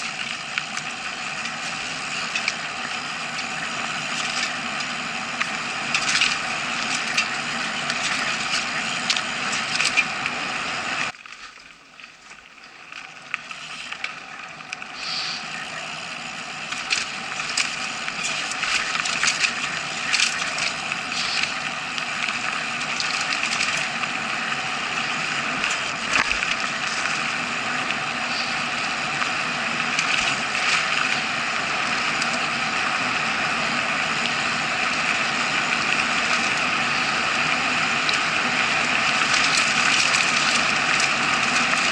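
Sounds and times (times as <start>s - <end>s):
bike knocking over roots: 0.0s - 10.3s, 16.6s - 24.3s, 37.6s - 41.9s
bike rolling and rattling: 0.0s - 41.9s.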